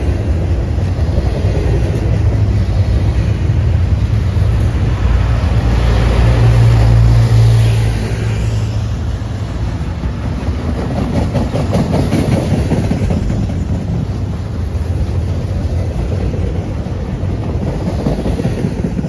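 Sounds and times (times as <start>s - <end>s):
locomotive engine rumble: 0.0s - 19.0s
rolling rattle of train: 0.0s - 19.0s.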